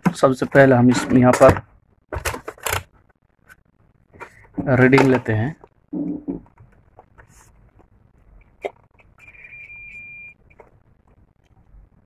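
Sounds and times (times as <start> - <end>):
multimeter high beep: 9.2 - 10.4.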